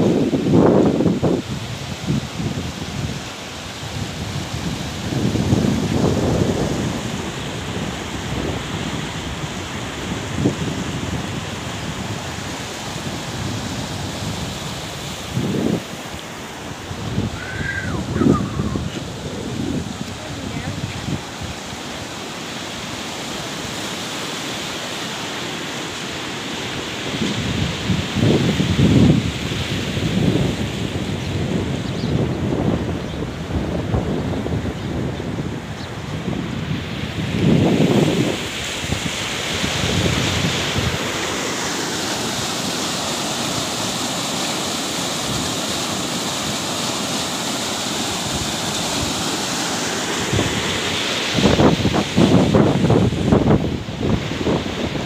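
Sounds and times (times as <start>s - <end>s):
wind buffeting microphone: 0.0s - 22.2s, 26.8s - 41.4s, 48.0s - 55.0s
floodwater rushing down a stream: 0.0s - 31.2s, 36.2s - 55.0s.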